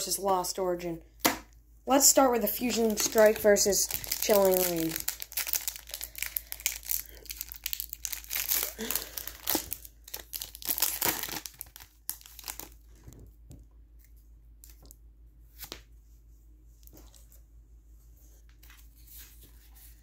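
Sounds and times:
foil pack crinkling: 0:02.4 - 0:13.0.

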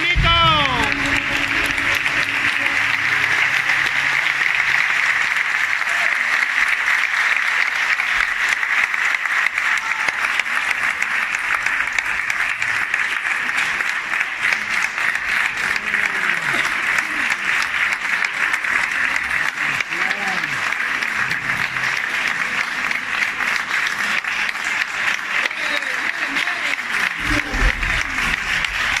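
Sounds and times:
music last note: 0:00.0 - 0:05.5
audience applauding: 0:00.0 - 0:29.0.

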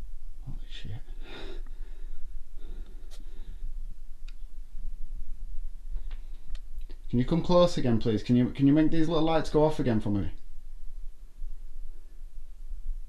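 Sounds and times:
steady low hum: 0:00.0 - 0:13.0
person breathing: 0:01.1 - 0:03.9.

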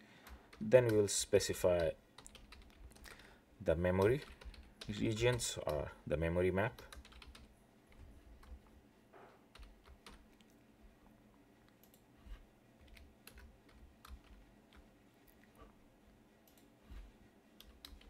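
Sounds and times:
faint low hum: 0:00.0 - 0:18.0
keyboard typing: 0:01.7 - 0:03.3, 0:04.0 - 0:05.9, 0:06.7 - 0:08.7, 0:09.5 - 0:10.5, 0:11.8 - 0:14.9, 0:17.6 - 0:18.0.

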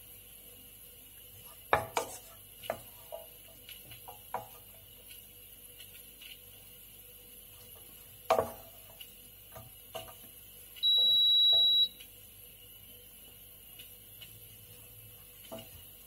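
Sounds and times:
high electronic beep: 0:10.8 - 0:11.9.

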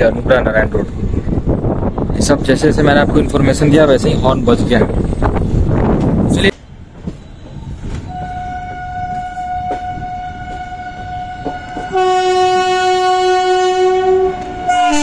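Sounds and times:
train rumbling: 0:00.0 - 0:15.0
train air horn blast: 0:08.1 - 0:15.0.

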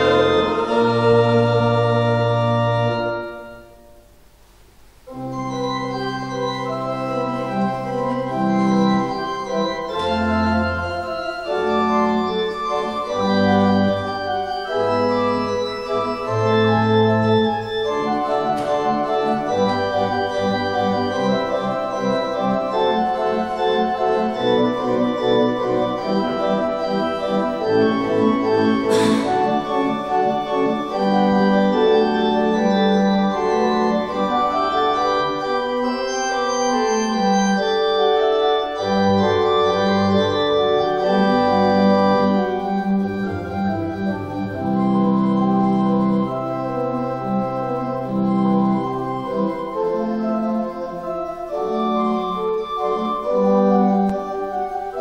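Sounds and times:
church organ chords: 0:00.0 - 0:04.2, 0:05.0 - 0:55.0
brief sharp noise: 0:28.9 - 0:29.4.

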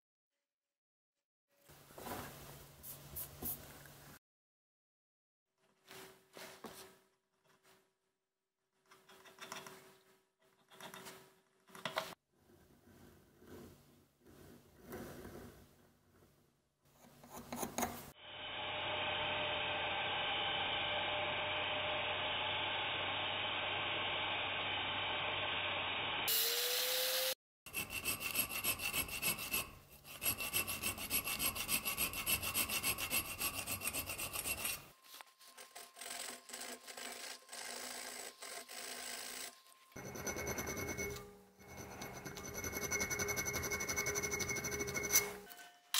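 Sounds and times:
hand file rasping on steel: 0:27.7 - 0:45.4.

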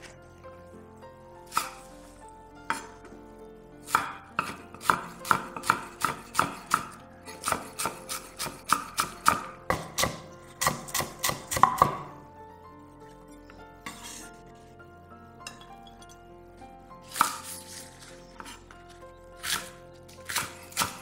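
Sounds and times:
knife chopping on wooden board: 0:01.5 - 0:01.9, 0:03.9 - 0:12.2, 0:17.1 - 0:17.8, 0:19.4 - 0:21.0.

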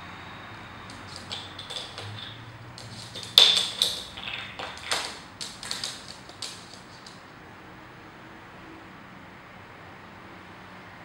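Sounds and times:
plastic taps and clacks on wood: 0:00.9 - 0:07.2.

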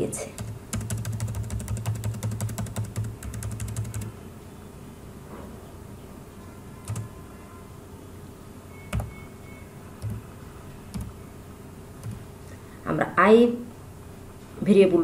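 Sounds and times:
keyboard keystrokes: 0:00.4 - 0:04.1, 0:06.9 - 0:07.1, 0:08.9 - 0:09.2, 0:10.0 - 0:10.2, 0:10.9 - 0:11.2, 0:12.0 - 0:12.2.

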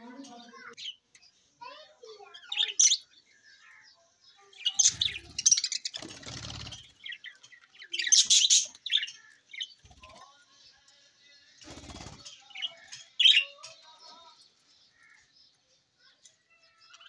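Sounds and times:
budgerigars chirping: 0:04.6 - 0:09.8
wings flapping: 0:05.9 - 0:07.1, 0:11.6 - 0:12.3.

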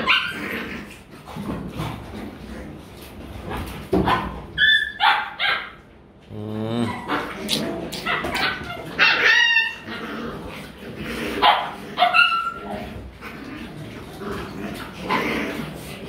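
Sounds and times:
puppies yelping and barking: 0:04.6 - 0:05.4, 0:08.0 - 0:10.0, 0:11.4 - 0:12.7.

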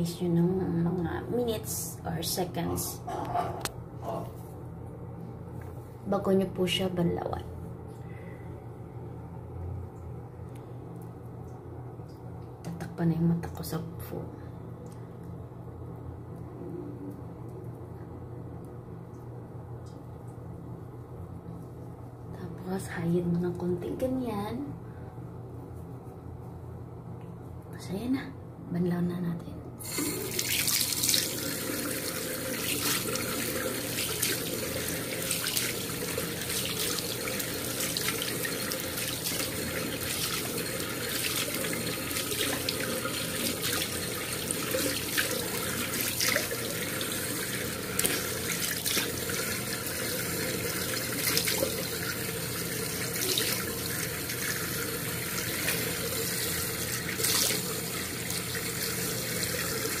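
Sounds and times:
tap water running into sink: 0:29.8 - 1:00.0.

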